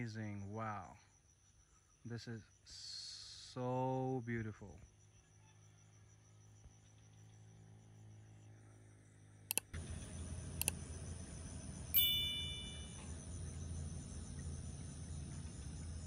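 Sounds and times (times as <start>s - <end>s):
sharp clicks: 9.5s - 9.8s
bright chime: 12.0s - 13.1s.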